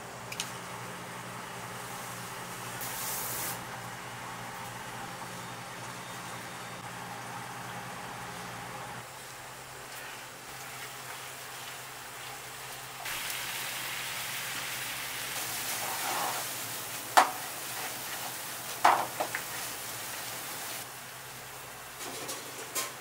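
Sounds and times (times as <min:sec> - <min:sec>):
pasta sizzling in frying pan: 0:10.0 - 0:23.0.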